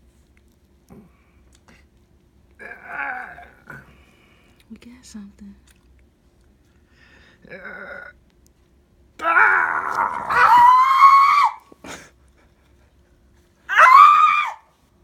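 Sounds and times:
person screaming: 2.6 - 3.6, 9.2 - 11.6, 13.7 - 14.6.

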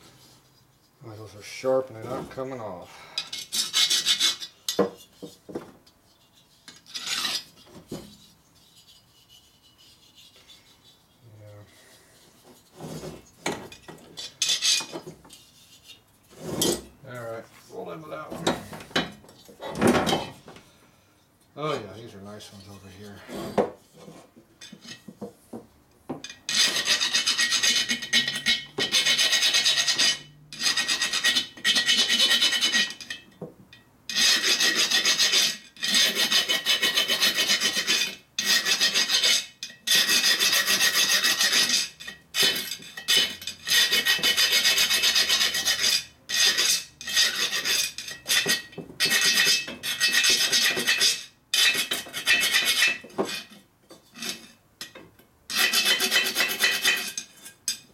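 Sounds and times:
hand file rasping on metal: 3.2 - 5.5, 6.1 - 13.2, 14.2 - 16.0, 26.5 - 33.2, 34.1 - 54.6, 55.5 - 57.8.

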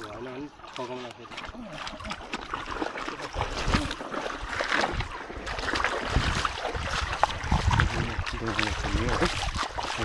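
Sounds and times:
stream water splashing: 0.0 - 10.0
wind on microphone: 4.8 - 10.0.

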